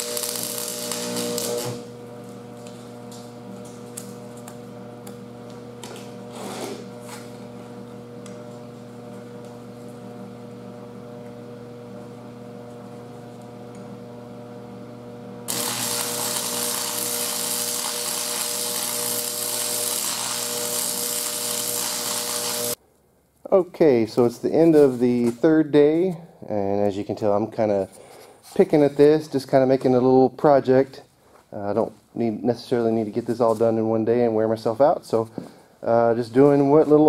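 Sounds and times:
arc welder crackling and hissing: 0.0s - 7.5s, 15.5s - 22.8s
electrical hum: 0.0s - 22.8s.

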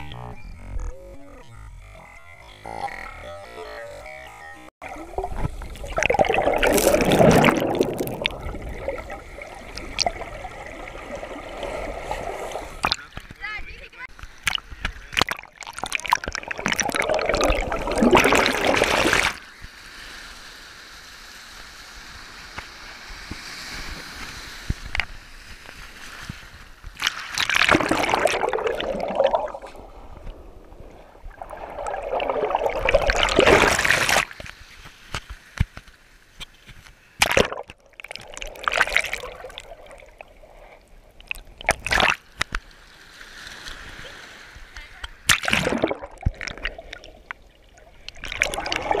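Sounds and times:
sea water sloshing and splashing: 4.8s - 13.2s, 14.1s - 19.5s, 23.0s - 35.6s, 37.2s - 49.0s.

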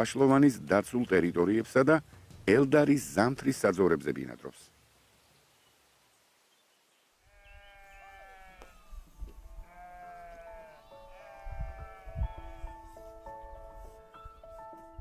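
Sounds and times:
sheep bleating: 7.3s - 12.8s.

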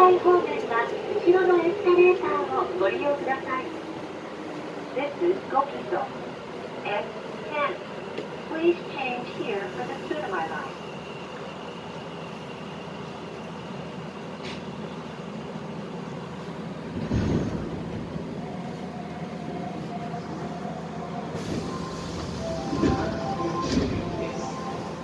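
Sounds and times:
train rumble and hiss: 0.0s - 25.0s.

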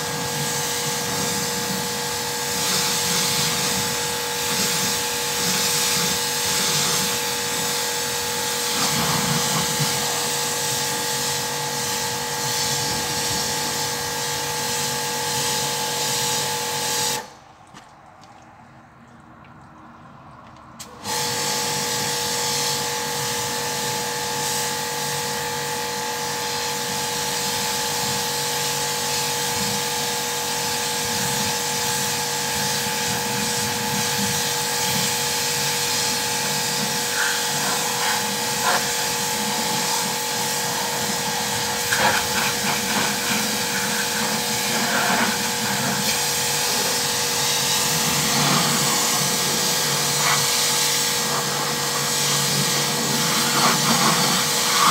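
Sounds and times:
pressure washer running: 0.0s - 17.4s, 20.8s - 54.9s.

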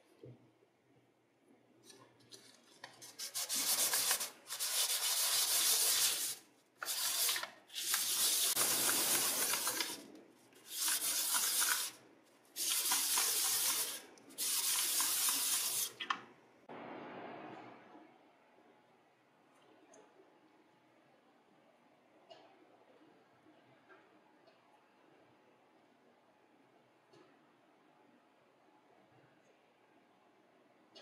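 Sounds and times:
metal rubbed on sandpaper: 3.0s - 10.0s, 10.7s - 12.0s.

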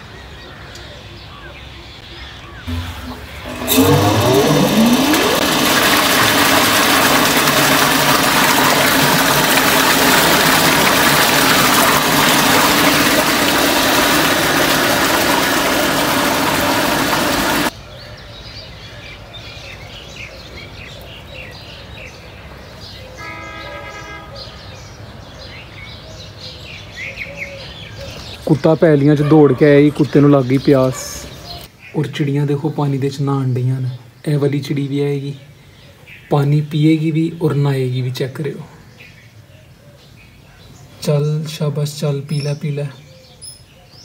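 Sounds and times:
birds chirping: 0.0s - 44.0s
water pump motor whining: 2.6s - 17.7s
water gushing into a tank: 2.7s - 17.7s.

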